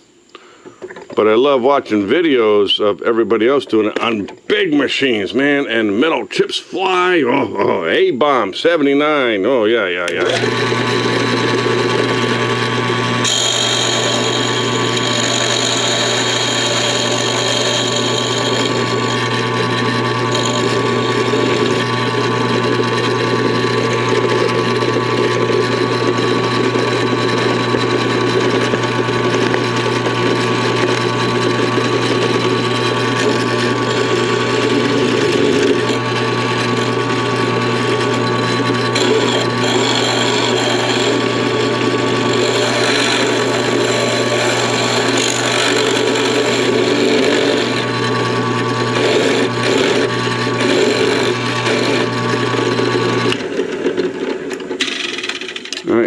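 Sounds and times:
drill press motor running: 10.0 - 56.0
metal cutting squeal: 13.2 - 29.1, 37.8 - 47.9.

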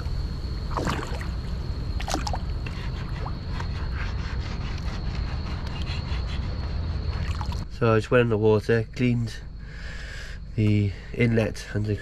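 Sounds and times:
steady low rumble: 0.0 - 12.0
louder splashes: 0.7 - 1.4
water splashing around swimmer: 0.7 - 1.4.

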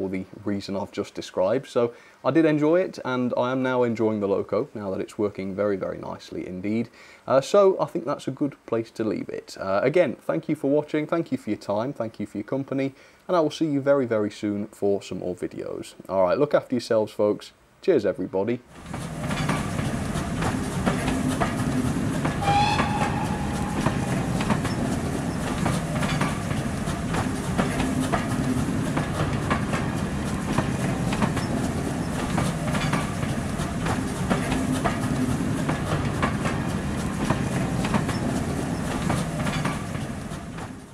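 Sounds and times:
train wheels clicking on rails: 18.7 - 40.9
train whistle: 22.4 - 25.0.

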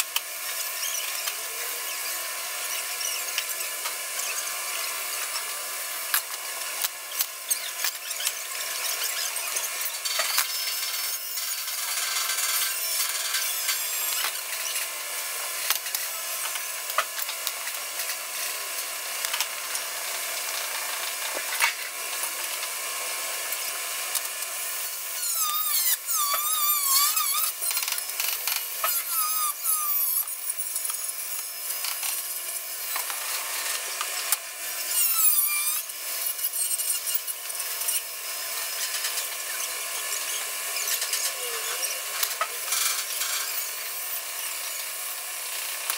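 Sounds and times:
welding and grinding hiss: 0.0 - 45.9
warbling high squeals: 25.2 - 27.7, 28.8 - 31.3.

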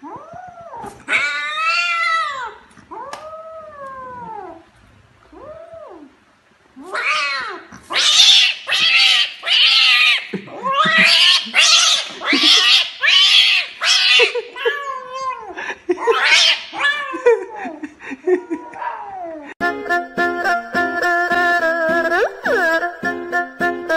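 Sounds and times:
kitten yowling: 6.8 - 15.5, 16.1 - 17.2
music: 19.6 - 23.9.

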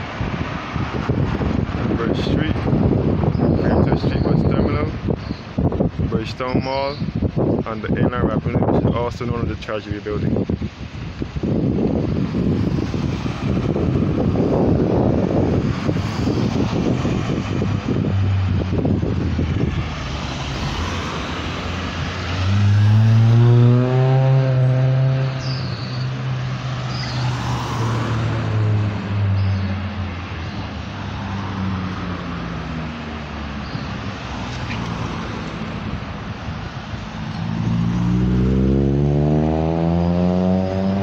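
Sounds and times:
road traffic passing: 0.0 - 41.0
wind rumbling on microphone: 0.0 - 41.0
vehicle engine passing by: 12.3 - 41.0.

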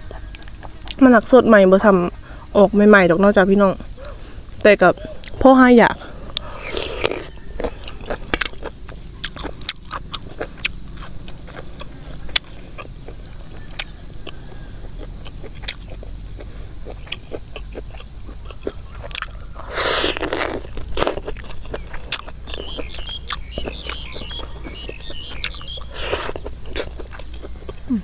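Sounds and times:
wet chewing: 3.8 - 28.0
loud slurp: 19.6 - 21.3.

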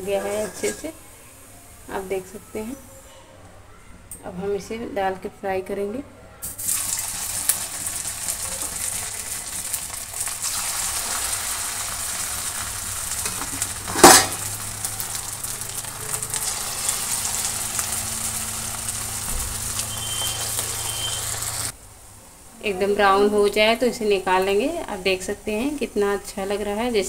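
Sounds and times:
sizzling of deep-frying oil: 6.4 - 21.8.

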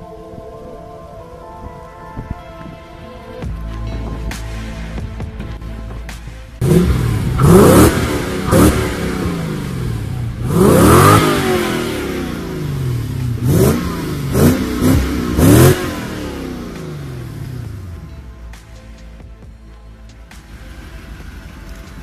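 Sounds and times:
engine revving: 6.2 - 18.5.

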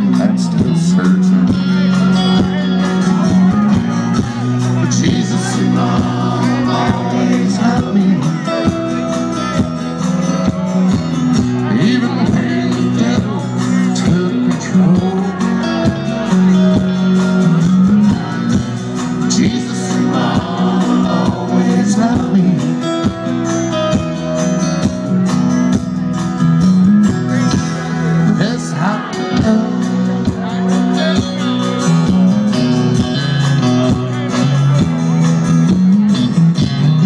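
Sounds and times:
live country band playing: 0.0 - 37.0.

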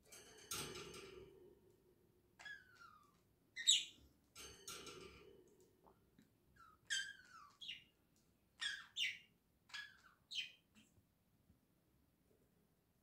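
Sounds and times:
budgerigar chirping: 3.6 - 4.0, 6.6 - 7.9, 8.6 - 10.6.

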